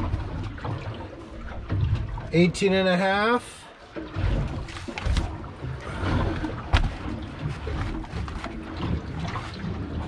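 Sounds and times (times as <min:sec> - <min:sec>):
low rumble on boat deck: 0:00.0 - 0:10.0.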